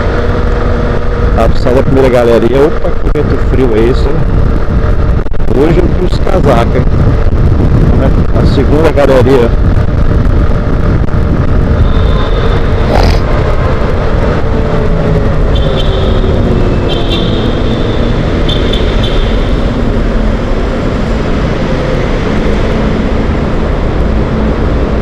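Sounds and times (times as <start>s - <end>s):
wind rushing over microphone: 0.0s - 25.0s
motorcycle engine: 10.0s - 24.5s.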